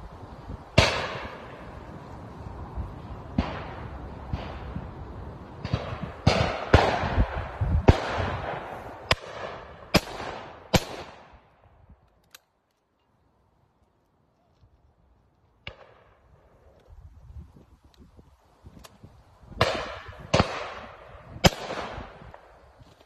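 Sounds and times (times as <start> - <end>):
shotgun shots echoing: 5.6 - 11.3, 19.6 - 22.2.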